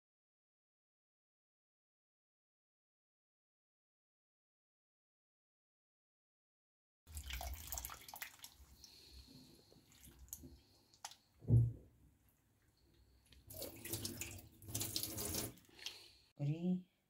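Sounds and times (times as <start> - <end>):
water splashing in a bowl: 7.1 - 11.3, 13.3 - 16.2
tap water running: 7.1 - 11.6, 12.9 - 16.2
clicks and drips: 9.8 - 11.4, 12.6 - 16.1
dull thump: 11.4 - 11.8.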